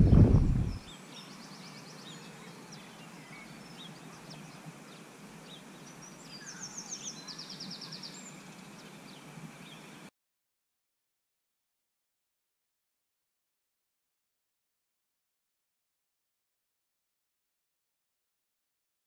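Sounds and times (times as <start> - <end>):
loud low rumble: 0.0 - 0.8
birds chirping: 0.0 - 10.1
faint steady hiss: 0.0 - 10.1.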